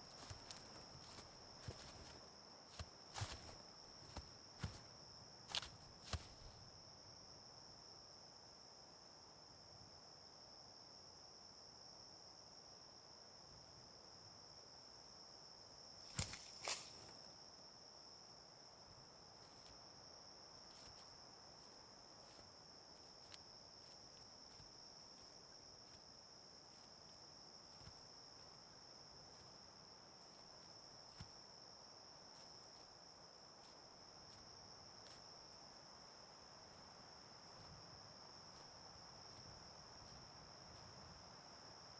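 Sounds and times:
high-pitched insect chorus: 0.0 - 7.0, 15.7 - 41.9.

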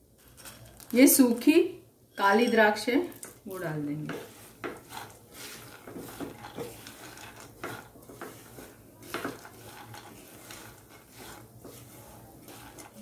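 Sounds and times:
spatula scraping nuts in a pan: 4.0 - 13.0.

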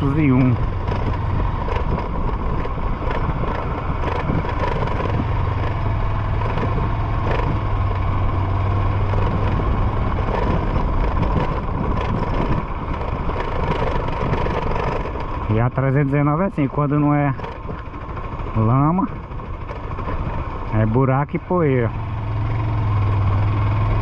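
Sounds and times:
motorcycle engine running: 0.0 - 24.0
wind and road noise: 0.0 - 24.0.

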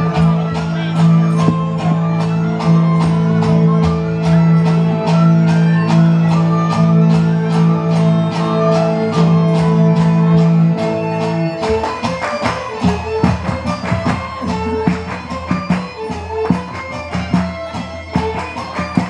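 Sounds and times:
fiddle: 0.0 - 19.0
plucked strings: 0.0 - 19.0
steady beat: 13.2 - 18.5.

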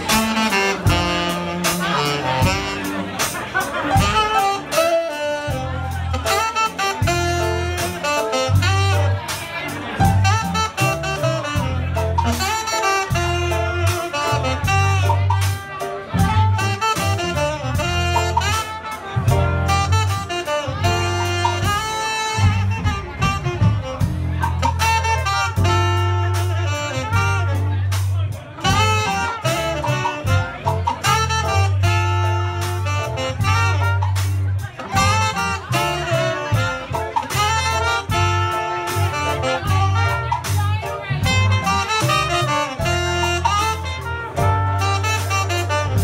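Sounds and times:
drums: 0.0 - 46.0
electric bass riff: 0.0 - 46.0
saxophone and trumpet lines: 0.0 - 46.0.

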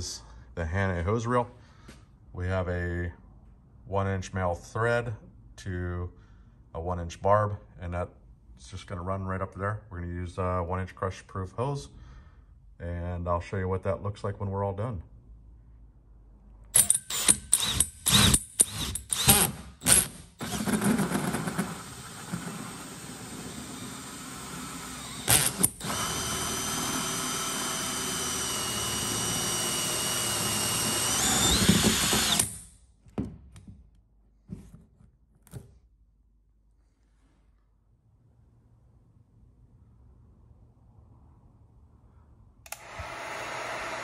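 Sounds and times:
cordless drill motor whine: 17.6 - 19.5, 21.5 - 32.5, 42.7 - 44.0.

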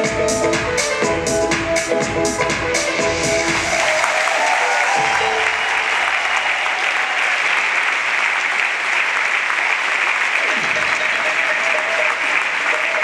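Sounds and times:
backing music: 0.0 - 7.1
audience applauding: 3.4 - 13.0.

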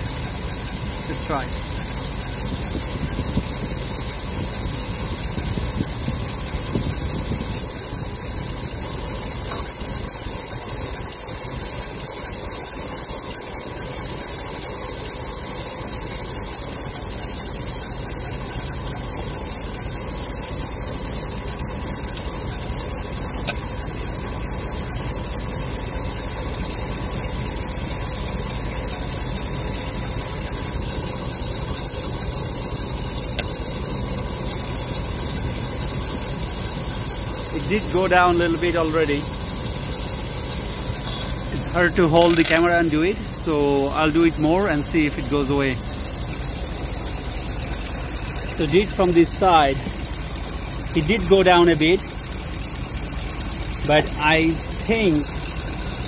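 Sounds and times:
car engine idling: 0.0 - 56.0
high-pitched drive belt squeak: 0.0 - 56.0.

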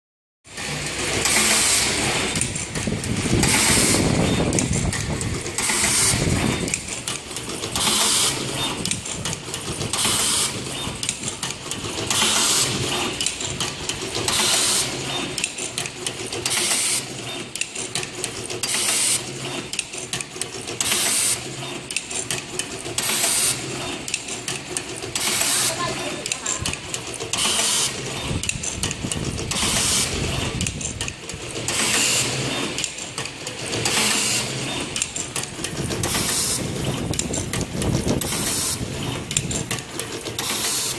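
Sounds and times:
machine running: 0.5 - 40.9
machine hiss bursts: 0.6 - 2.4, 3.1 - 4.2, 5.5 - 6.4, 7.8 - 8.4, 9.9 - 10.6, 12.1 - 13.0, 14.3 - 15.0, 27.3 - 28.0, 29.5 - 30.4, 33.8 - 34.8, 36.0 - 36.7, 38.2 - 38.9, 40.4 - 40.9.

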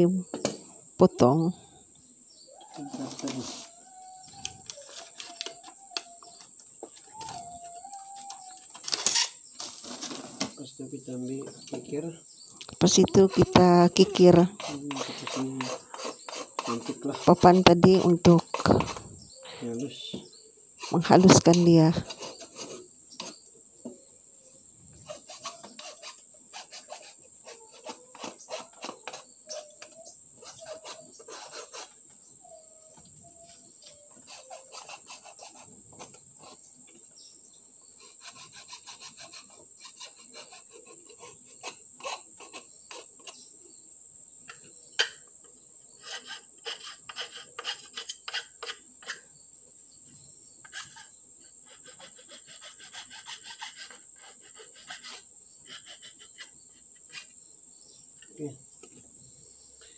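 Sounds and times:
high insect drone: 0.0 - 59.9
hand file rasping on wood: 13.2 - 19.0, 25.0 - 32.0, 33.9 - 36.6, 38.0 - 43.4, 46.0 - 49.2, 50.6 - 57.3.

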